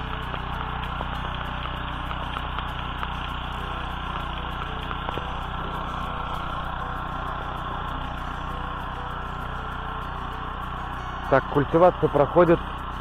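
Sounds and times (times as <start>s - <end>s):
walk-behind tractor engine running: 0.0s - 13.0s.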